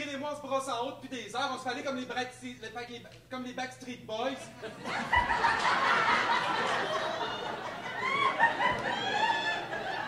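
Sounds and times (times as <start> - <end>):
audience laughing: 4.6 - 10.0.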